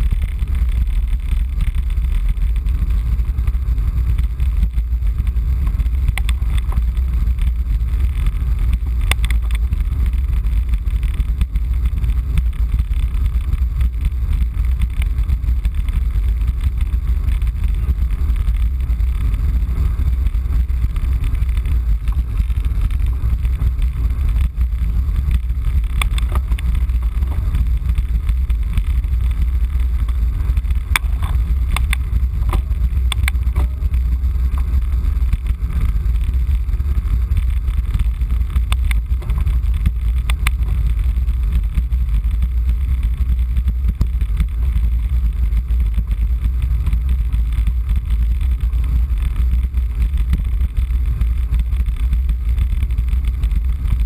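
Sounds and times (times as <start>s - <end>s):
wind buffeting microphone: 0.0s - 54.0s
sharp clicks: 30.0s - 33.8s.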